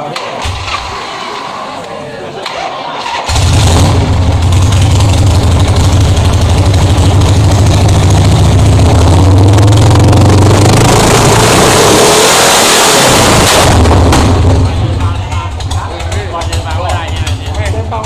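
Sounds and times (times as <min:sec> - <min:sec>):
motorcycle engine running: 0:02.5 - 0:12.2, 0:12.9 - 0:18.0.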